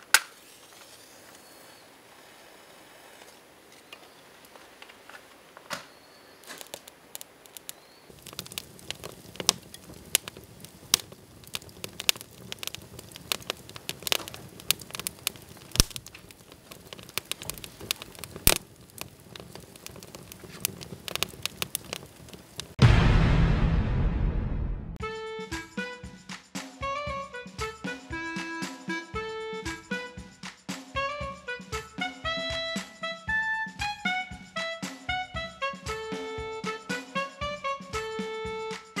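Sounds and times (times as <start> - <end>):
wood fire crackling and popping: 0.0 - 1.4, 3.1 - 22.9
low rush of flame: 6.3 - 25.0.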